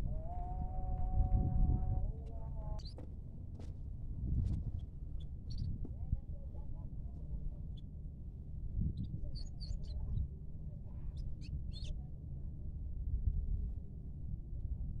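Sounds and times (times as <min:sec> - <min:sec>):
low rumble: 0:00.0 - 0:10.3.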